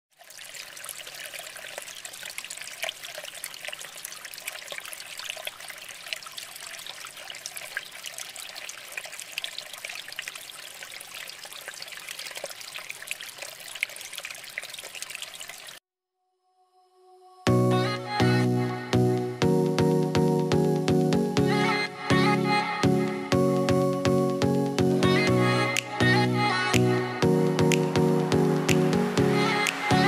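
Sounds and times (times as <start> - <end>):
water trickling and splashing: 0.1 - 15.8, 27.7 - 30.0.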